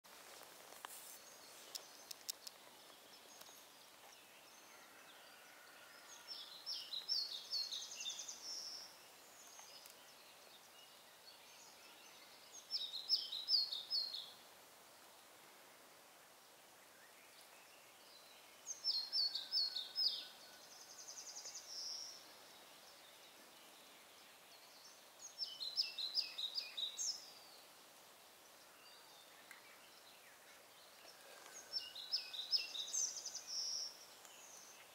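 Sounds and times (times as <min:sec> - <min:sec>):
songbird singing: 0:00.0 - 0:34.9
faint steady hiss: 0:00.1 - 0:34.9
faint clicks: 0:01.6 - 0:03.6, 0:09.5 - 0:10.0, 0:29.4 - 0:29.7.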